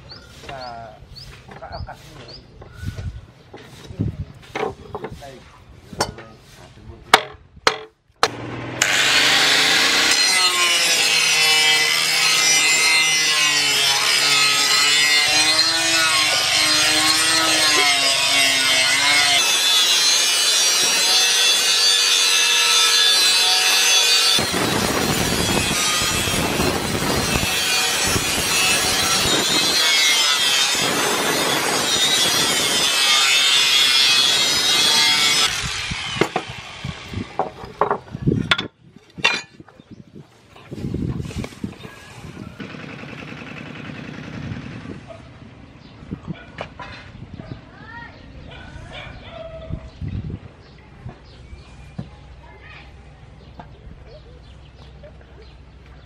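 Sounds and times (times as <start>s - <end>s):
angle grinder grinding steel: 8.2s - 38.6s.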